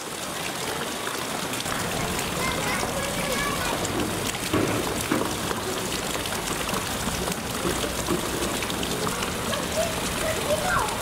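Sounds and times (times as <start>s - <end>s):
running water rushing: 0.0s - 11.0s
faint voices: 1.7s - 4.2s, 8.8s - 11.0s.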